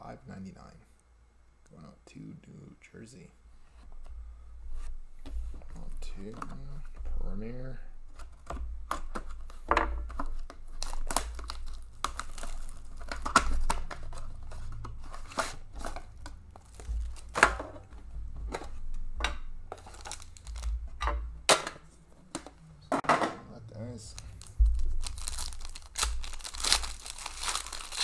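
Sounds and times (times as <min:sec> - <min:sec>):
plastic shrink-wrap crinkling and tearing: 0:10.2 - 0:17.4, 0:19.8 - 0:20.8, 0:23.9 - 0:28.0.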